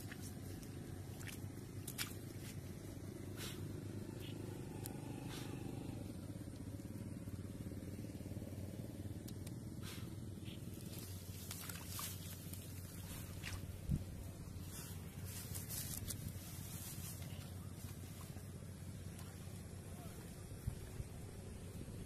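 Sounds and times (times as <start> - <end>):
hands scooping wet mud: 0.0 - 3.7, 9.8 - 18.4
steady low hum: 0.0 - 22.0.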